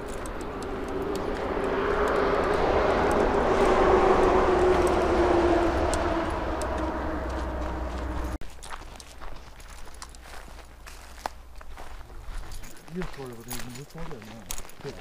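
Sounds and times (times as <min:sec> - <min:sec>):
passing engine hum: 0:00.0 - 0:08.4
footsteps on gravel: 0:00.0 - 0:15.0.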